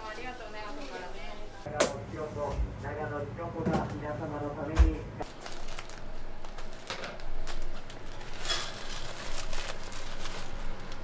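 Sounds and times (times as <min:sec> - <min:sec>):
plastic packs crinkling: 0:05.2 - 0:11.0.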